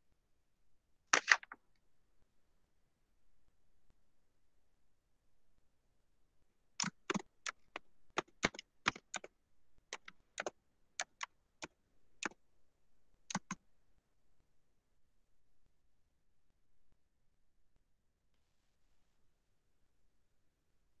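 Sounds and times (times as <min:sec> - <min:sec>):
computer keyboard typing: 0:06.8 - 0:09.3, 0:09.9 - 0:11.3, 0:13.3 - 0:13.6.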